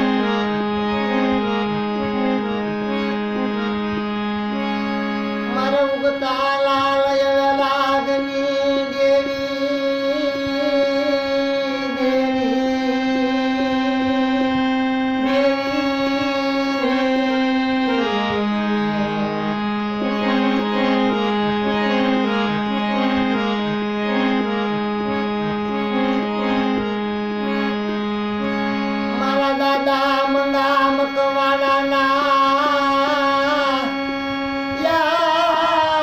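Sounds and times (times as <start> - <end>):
harmonium playing: 0.0 - 36.0
man singing: 5.4 - 22.4, 29.0 - 36.0.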